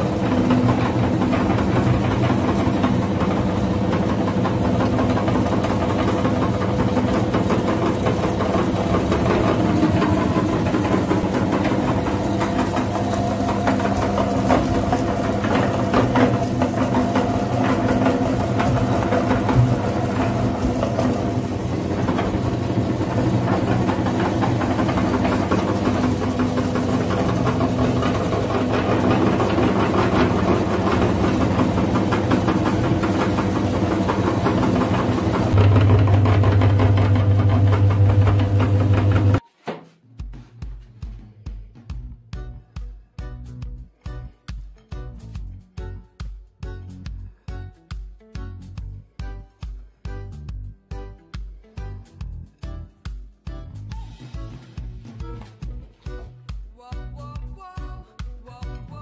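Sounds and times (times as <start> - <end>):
meat grinder humming: 0.0 - 39.4.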